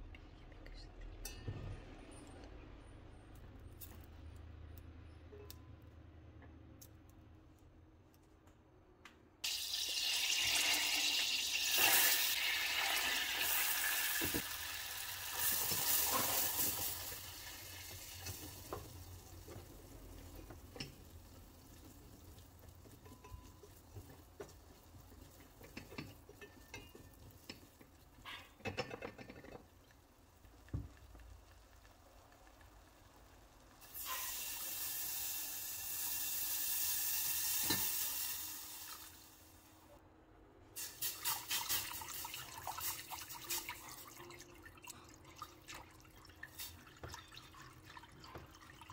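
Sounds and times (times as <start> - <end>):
butter sizzling in a saucepan: 9.4 - 27.8, 33.8 - 39.5
milk pouring and splashing: 41.0 - 48.9.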